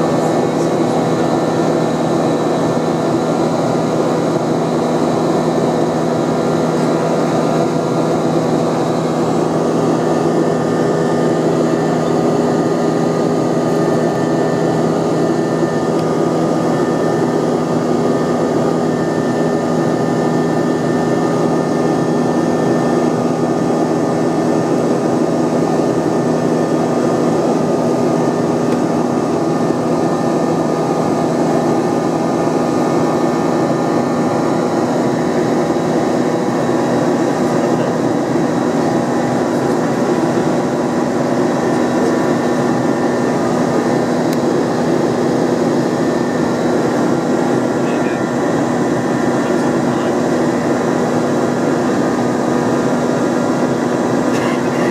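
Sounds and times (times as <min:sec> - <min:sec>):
jet engine drone: 0:00.0 - 0:54.9.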